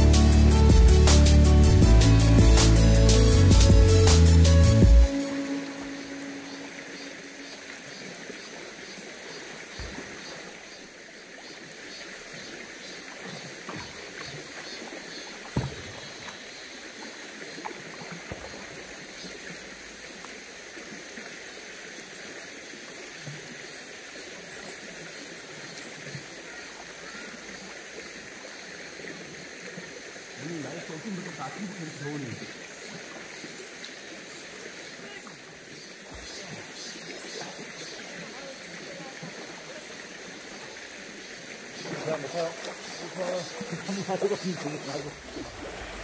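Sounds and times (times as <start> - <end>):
stream water rushing: 0.0 - 46.0
knocks and small splashes: 8.9 - 11.7, 12.9 - 20.4, 37.2 - 46.0.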